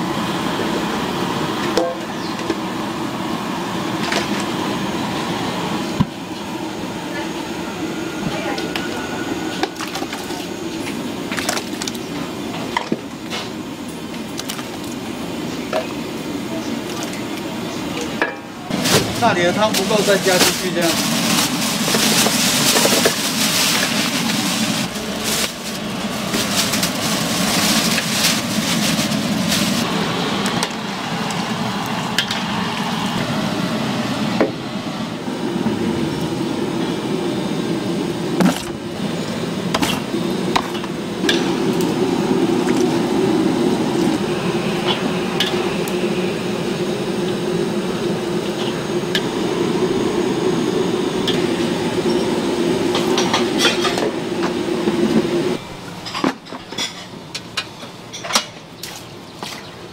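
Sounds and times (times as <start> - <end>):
water boiling: 9.5 - 18.1, 18.7 - 34.2, 35.1 - 56.1.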